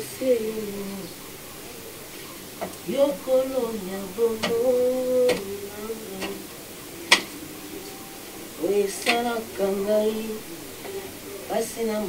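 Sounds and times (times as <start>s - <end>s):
woman humming: 2.8s - 6.6s, 7.3s - 12.0s.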